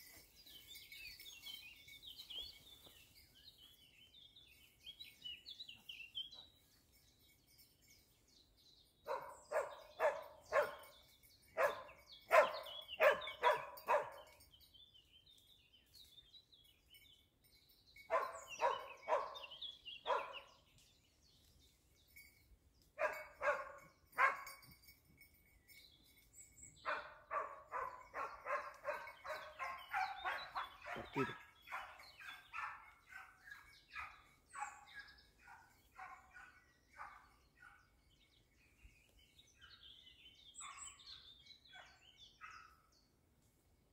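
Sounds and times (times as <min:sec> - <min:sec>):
hound barking: 0:09.1 - 0:10.9, 0:11.6 - 0:14.3, 0:18.1 - 0:20.5, 0:23.0 - 0:24.6, 0:26.8 - 0:37.9.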